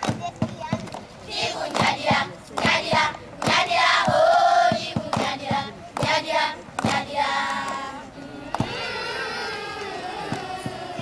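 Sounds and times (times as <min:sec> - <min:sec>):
hand claps: 0:00.0 - 0:01.1, 0:01.7 - 0:06.2, 0:06.8 - 0:07.8, 0:09.8 - 0:10.8
girls singing in chorus: 0:01.3 - 0:11.0.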